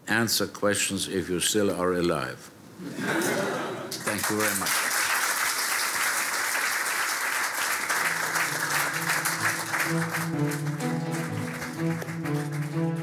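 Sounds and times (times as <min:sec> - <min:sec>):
audience applauding: 0:03.9 - 0:13.0
slow music with low held notes: 0:08.0 - 0:13.0.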